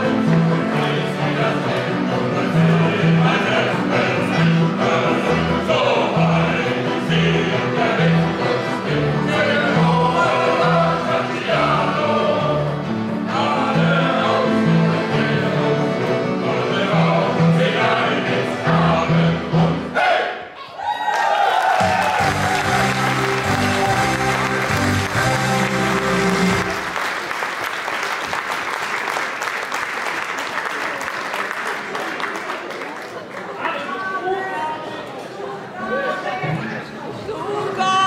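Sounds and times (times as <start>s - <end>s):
accordion: 0.0s - 19.9s, 22.2s - 27.0s
men's choir singing: 0.0s - 20.4s.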